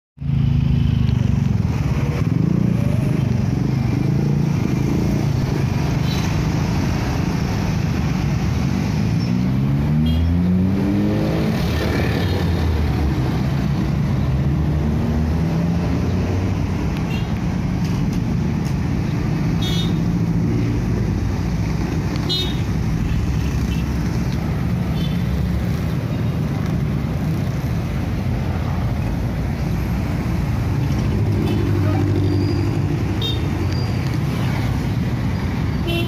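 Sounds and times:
road traffic passing: 0.2s - 36.0s
engine revving: 8.8s - 13.4s.

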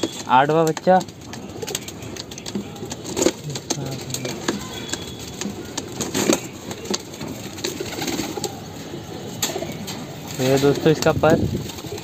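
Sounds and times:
clicks and rustling: 0.0s - 8.6s.

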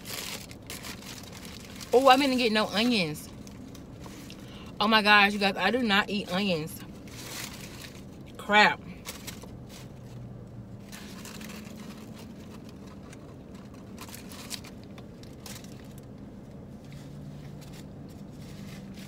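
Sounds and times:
paper wrapper crinkling: 0.0s - 4.5s, 6.9s - 8.4s, 10.8s - 16.2s
low hum inside car: 0.0s - 19.0s.

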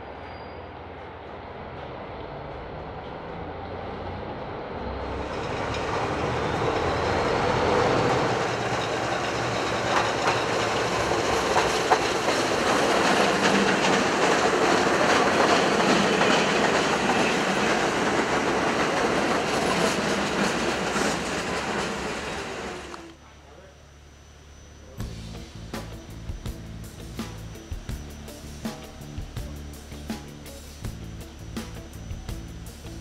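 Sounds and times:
subway train rumbling on tracks: 0.0s - 33.0s
wheel clatter: 5.1s - 23.0s.

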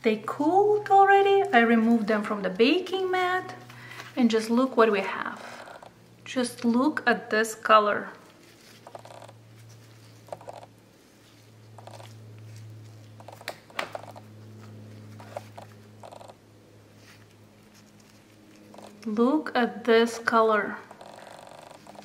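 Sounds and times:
steady low hum: 0.0s - 22.0s
soft rustles: 8.2s - 13.4s, 16.9s - 19.0s.

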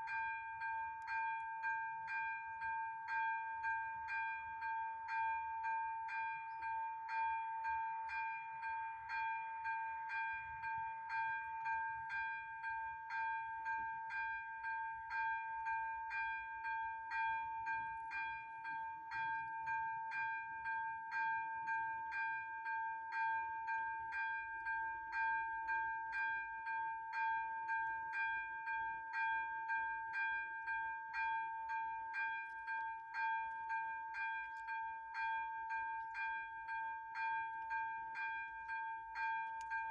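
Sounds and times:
electronic level crossing bell ringing: 21.8s - 39.9s.

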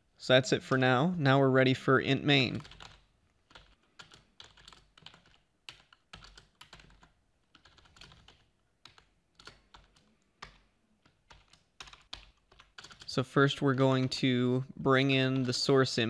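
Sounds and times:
typing on keyboard: 2.5s - 13.2s.

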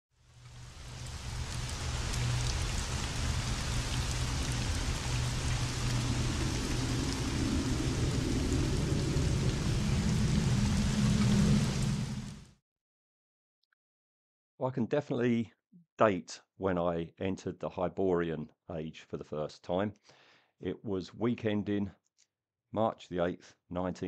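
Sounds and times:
heavy rain falling: 0.2s - 12.5s
thunder rumbling: 0.8s - 12.4s.

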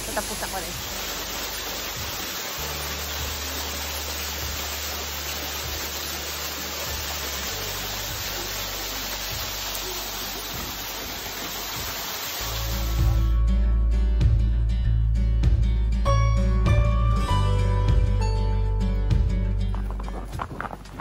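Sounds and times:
water spraying and dripping: 0.0s - 13.4s.

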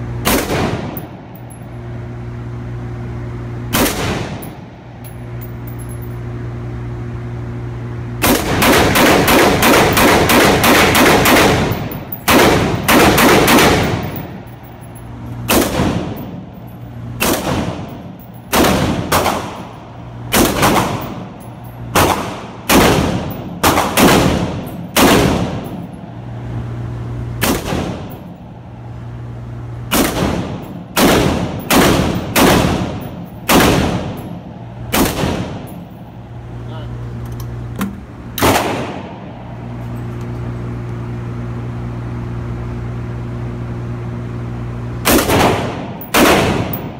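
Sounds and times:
steady low hum: 0.0s - 46.9s
rifle shots ringing indoors: 0.2s - 1.9s, 3.7s - 4.7s, 8.2s - 26.0s, 27.4s - 28.4s, 29.9s - 36.3s, 38.4s - 39.5s, 45.0s - 46.9s.

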